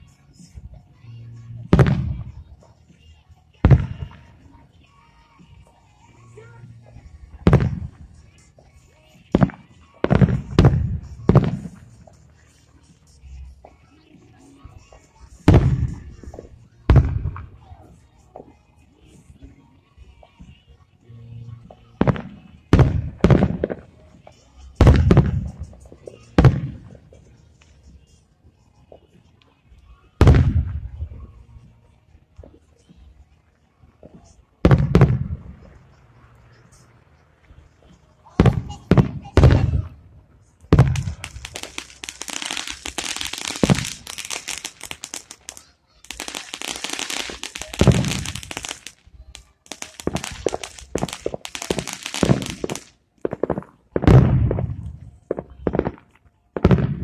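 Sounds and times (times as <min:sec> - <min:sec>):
dense firework crackling: 0:07.1 - 0:08.5, 0:09.2 - 0:12.6, 0:14.9 - 0:17.7, 0:22.0 - 0:27.7, 0:30.2 - 0:31.6, 0:34.1 - 0:36.9, 0:37.5 - 0:40.0, 0:40.6 - 0:57.0
firework shells booming: 0:07.4 - 0:08.0, 0:34.6 - 0:35.8, 0:40.7 - 0:57.0
firework deep booms: 0:30.2 - 0:31.2, 0:34.6 - 0:35.7, 0:50.0 - 0:56.0.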